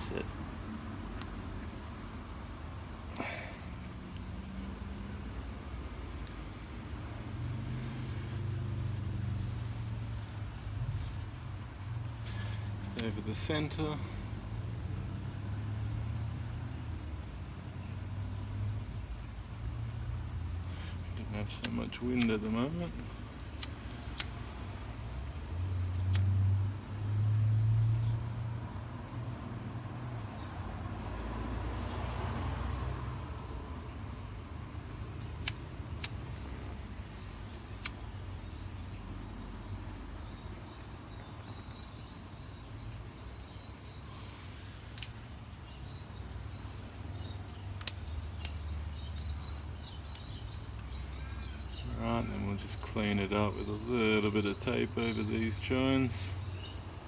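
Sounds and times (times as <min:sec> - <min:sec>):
sharp clicks: 0:20.5 - 0:22.6, 0:23.5 - 0:24.4, 0:26.0 - 0:26.4, 0:35.2 - 0:36.4, 0:37.2 - 0:38.2, 0:44.5 - 0:45.3, 0:47.2 - 0:51.8
lighter clicks: 0:35.4 - 0:36.2, 0:37.8 - 0:38.0.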